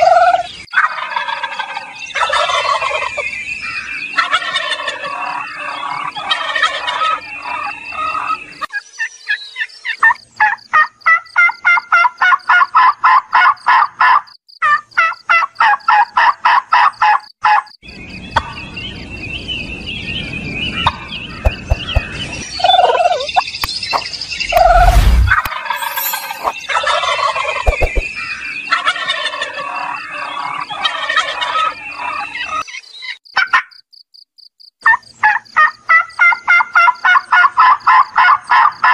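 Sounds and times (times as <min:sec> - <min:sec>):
turkeys gobbling: 0:00.0 - 0:03.2, 0:04.2 - 0:08.4, 0:10.4 - 0:17.6, 0:20.8 - 0:23.4, 0:28.7 - 0:32.6, 0:35.2 - 0:38.7
low rumble: 0:24.4 - 0:25.5.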